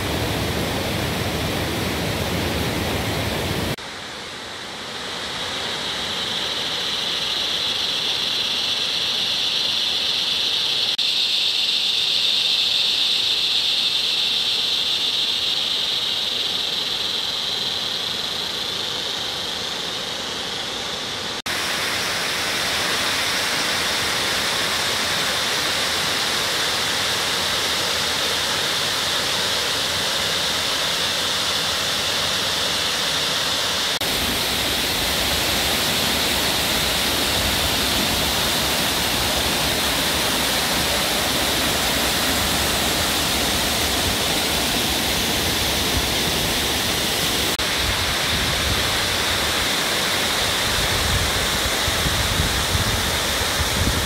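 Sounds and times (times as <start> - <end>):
waterfall rushing: 32.2 - 54.0
creek running: 34.0 - 53.2.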